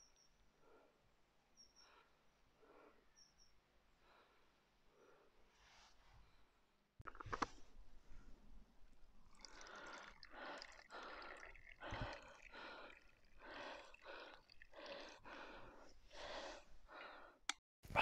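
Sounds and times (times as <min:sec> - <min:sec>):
hot drink glugging from flask: 0:07.0 - 0:16.9.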